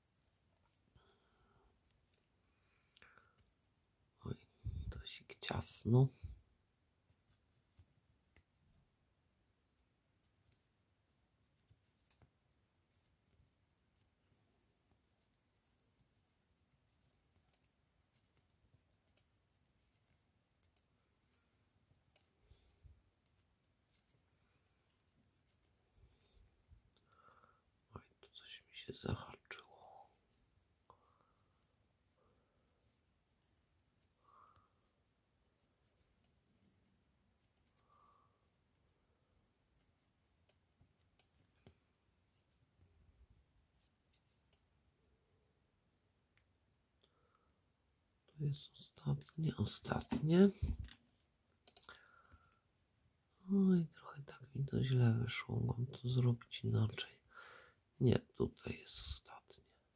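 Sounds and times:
knitting needle clicking on hook: 51.6 - 52.0.

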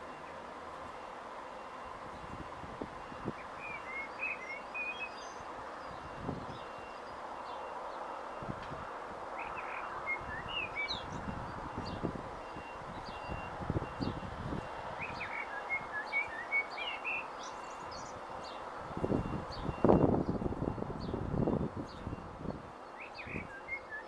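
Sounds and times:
small birds chirping: 3.3 - 8.1, 9.4 - 14.2, 15.0 - 20.4, 21.0 - 24.0.

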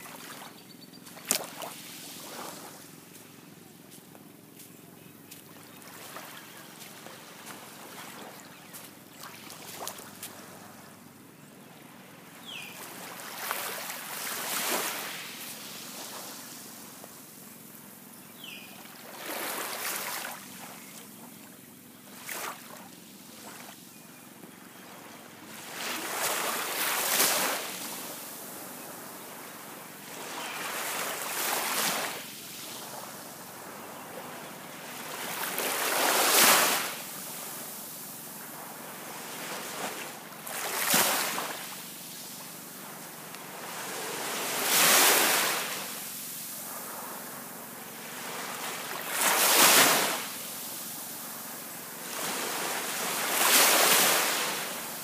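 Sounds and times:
small waves washing on sand: 0.0 - 11.0, 11.8 - 18.1, 18.8 - 21.3, 22.0 - 23.8, 24.8 - 55.0
low steady hiss: 0.0 - 55.0.

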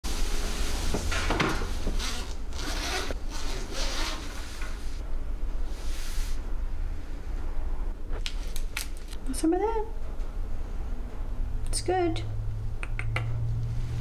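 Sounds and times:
fabric rubbing and rasping: 0.1 - 5.0
steady low hum: 0.1 - 14.0.

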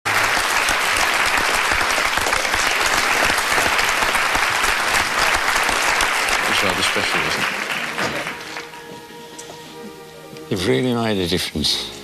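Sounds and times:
audience applauding: 0.1 - 9.1.

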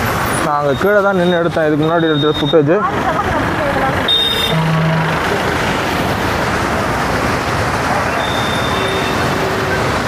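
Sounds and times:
river water rushing: 2.8 - 10.0.

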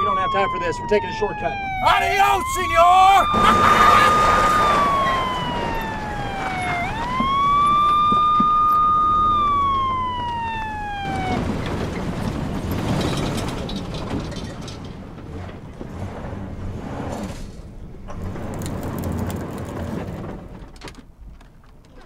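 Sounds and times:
police siren wailing: 0.0 - 12.4
truck driving over sand: 10.6 - 20.7.

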